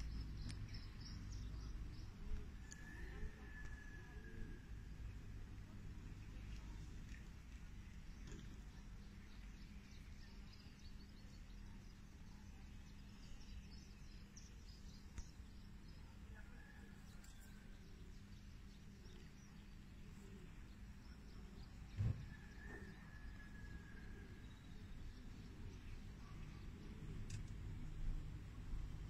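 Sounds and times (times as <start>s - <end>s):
small birds chirping: 0.0s - 3.0s.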